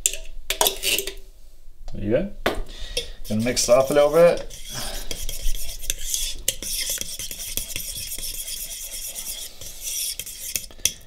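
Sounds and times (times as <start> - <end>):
fork scraping thick mixture: 0.6 - 1.2, 3.0 - 11.0.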